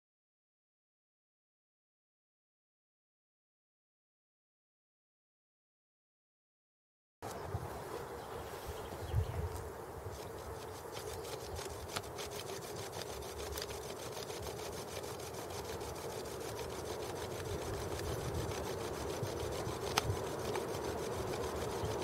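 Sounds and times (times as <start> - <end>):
bow drill grinding into antler: 10.2 - 22.0.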